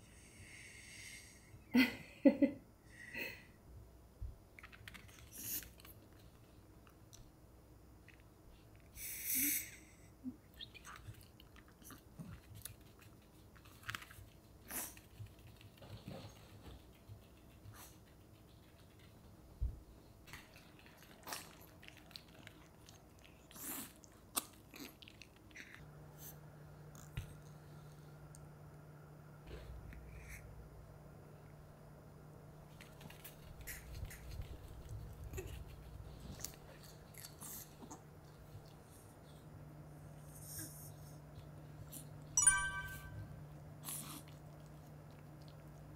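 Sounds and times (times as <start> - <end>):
dog crunching cucumber: 20.3 - 25.8.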